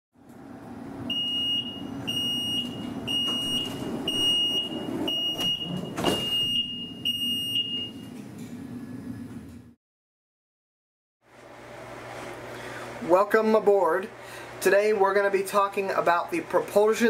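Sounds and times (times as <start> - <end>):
door warning beeps: 1.1 - 8.2
doors shutting with a thump: 2.6 - 6.7.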